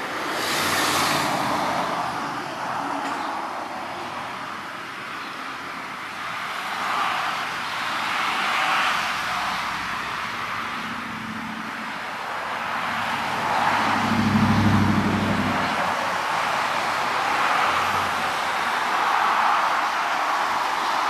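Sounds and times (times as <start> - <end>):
cars passing with tyre noise: 0.0 - 21.0
engine hum: 13.1 - 18.1.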